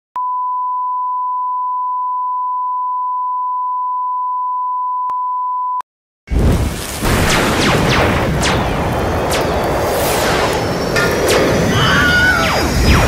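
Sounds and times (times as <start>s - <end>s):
sine test tone: 0.2s - 5.8s
loud burst of noise: 6.3s - 13.0s.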